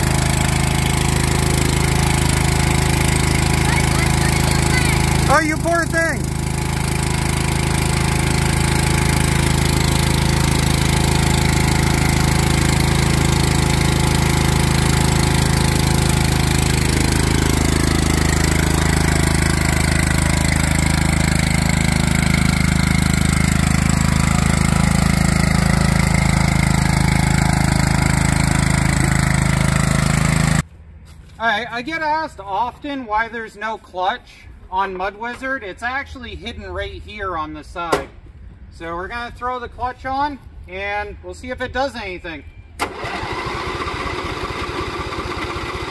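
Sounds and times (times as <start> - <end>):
small engine running: 0.0 - 30.7, 42.8 - 45.9.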